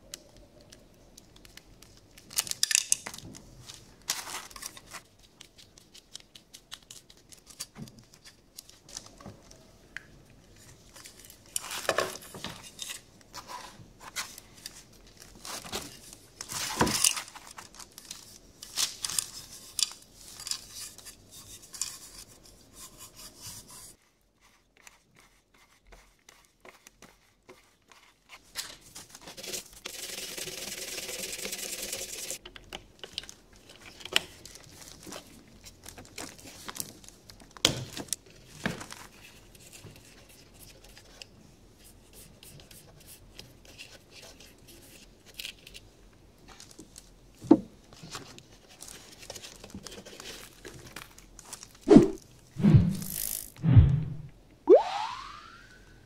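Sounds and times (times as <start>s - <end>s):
small brush scrubbing: 20.6s - 28.5s.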